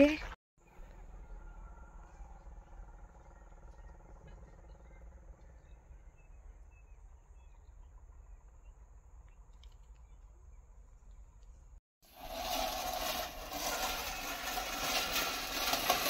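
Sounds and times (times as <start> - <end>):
faint bird chirps: 0.7 - 11.6.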